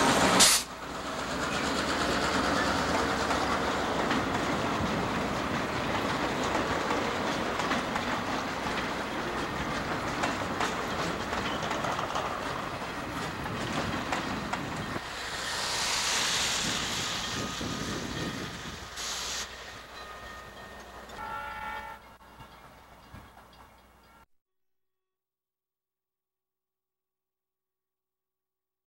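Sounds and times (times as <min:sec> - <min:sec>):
train wheels clicking over rail joints: 0:00.0 - 0:21.2, 0:22.2 - 0:24.2
train horn: 0:21.2 - 0:22.2.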